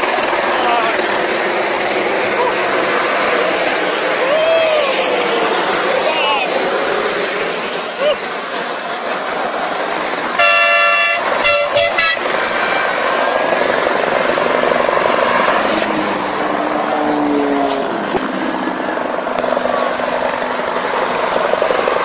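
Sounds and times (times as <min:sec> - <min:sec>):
passing road traffic: 0:00.0 - 0:22.0
vehicle horn blasts: 0:10.4 - 0:12.4.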